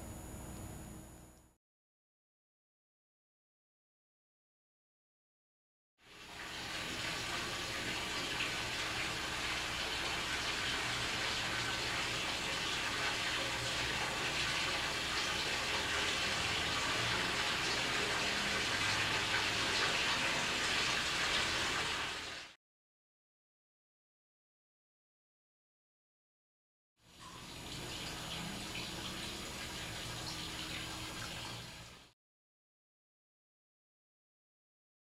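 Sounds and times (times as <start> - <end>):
water running from tap: 6.0 - 22.6, 27.1 - 32.1.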